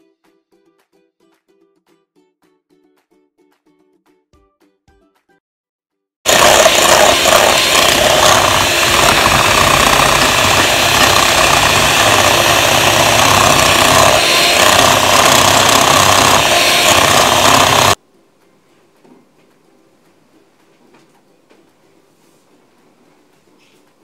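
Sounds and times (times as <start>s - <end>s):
electric hand mixer whirring: 6.3s - 18.0s.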